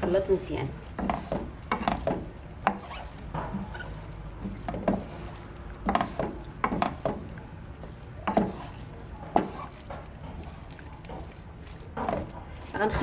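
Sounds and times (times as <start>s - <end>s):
wooden spoon stirring in a pan: 0.0s - 13.0s
spoon scraping and knocking a pan: 1.0s - 7.3s, 8.3s - 10.6s, 12.0s - 12.4s.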